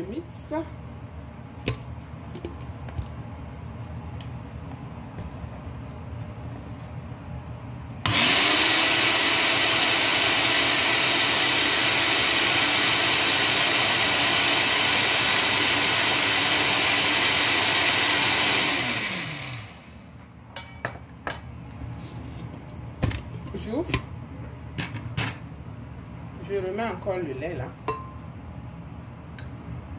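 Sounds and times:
blender motor whirring: 8.0s - 19.9s.

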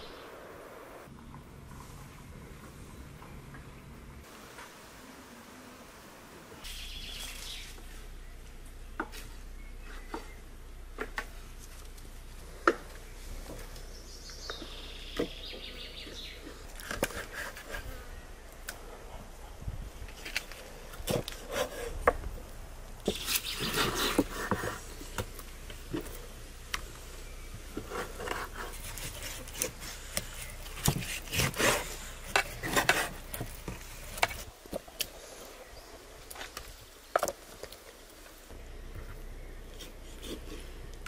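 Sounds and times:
scraping: 18.8s - 35.1s.

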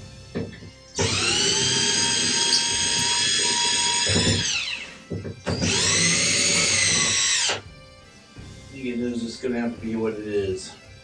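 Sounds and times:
cordless drill motor whine: 1.0s - 7.7s.

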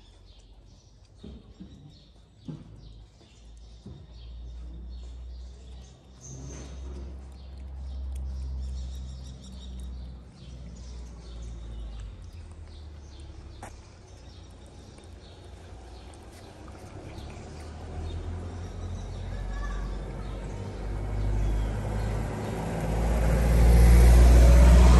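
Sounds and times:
cat chewing wet food: 6.7s - 18.6s.

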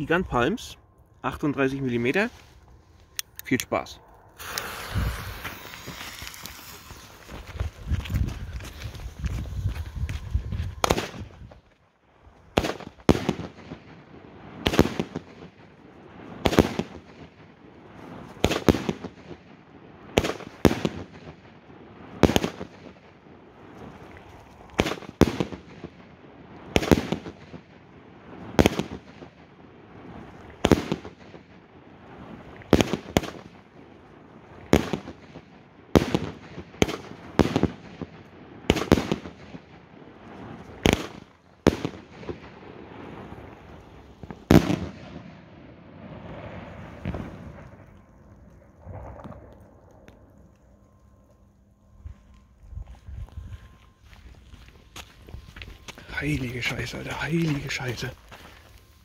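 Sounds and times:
crackling hiss of burning fireworks: 0.0s - 59.0s
firework bangs: 4.4s - 11.6s, 12.5s - 49.8s.

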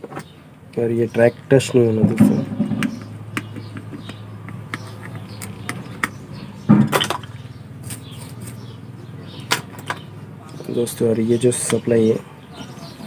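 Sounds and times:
knock: 2.0s - 4.2s.

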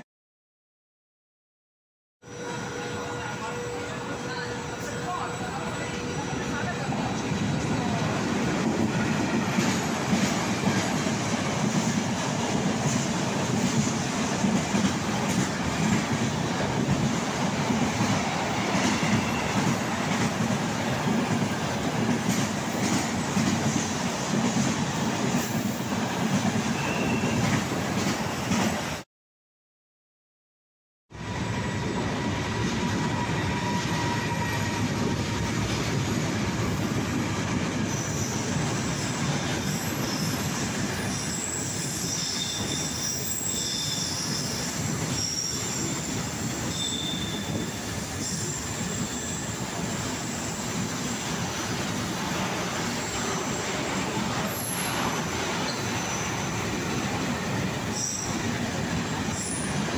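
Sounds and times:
train wheels rumbling on rail: 2.4s - 29.0s, 31.1s - 59.9s
high-pitched wheel squeal: 18.6s - 19.6s, 37.9s - 51.2s, 55.6s - 56.7s, 57.9s - 58.4s.

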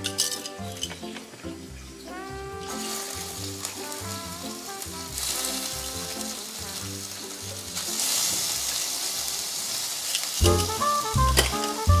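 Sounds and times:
background music: 0.0s - 12.0s
fish sizzling in a pan: 2.7s - 10.8s.

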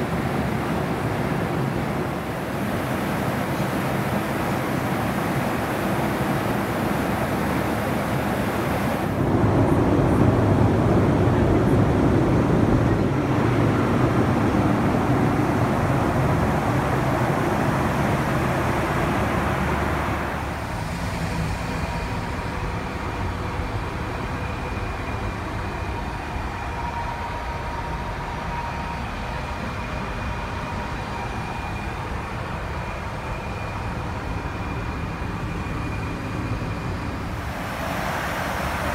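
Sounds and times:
airliner cabin noise: 0.0s - 23.6s
faint steady whine: 0.0s - 38.9s.

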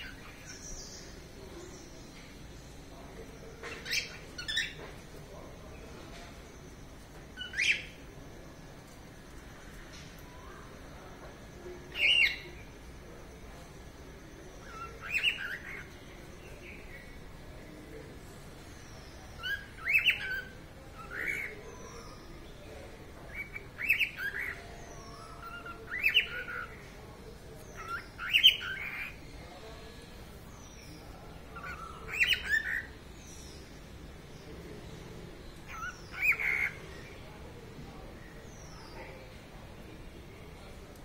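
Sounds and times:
cockatiel singing: 3.6s - 4.8s, 14.6s - 15.9s, 19.4s - 22.2s, 23.3s - 26.8s, 27.8s - 29.2s, 31.5s - 32.9s, 35.7s - 36.8s.

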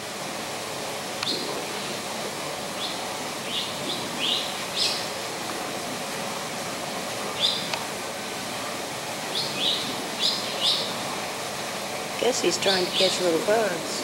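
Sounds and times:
background hiss: 0.0s - 14.0s
small birds chirping: 2.8s - 5.1s, 9.3s - 11.0s, 12.6s - 13.3s.

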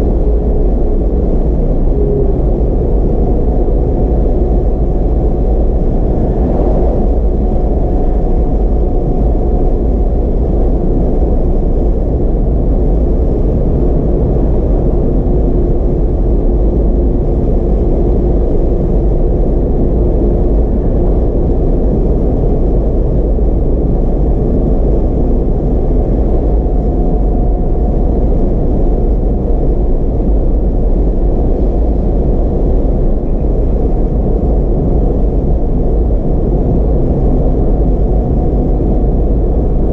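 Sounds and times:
car cabin road and engine noise: 0.0s - 39.9s
truck passing whoosh: 3.9s - 9.4s.

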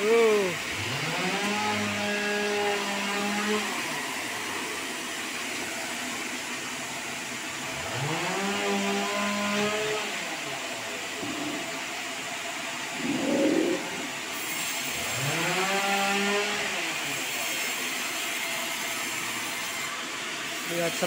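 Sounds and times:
motor hum rising in pitch: 0.0s - 17.2s.

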